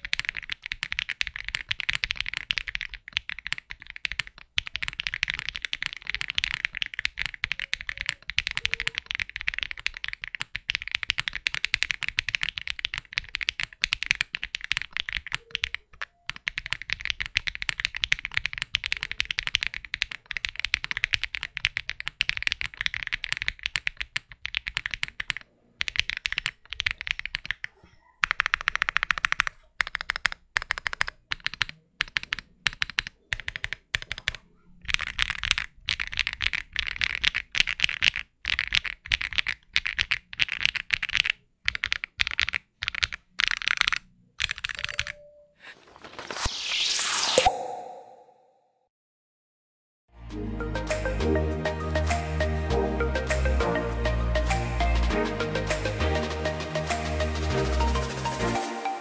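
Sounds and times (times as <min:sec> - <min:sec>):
typing on mechanical keyboard: 0:00.0 - 0:45.3.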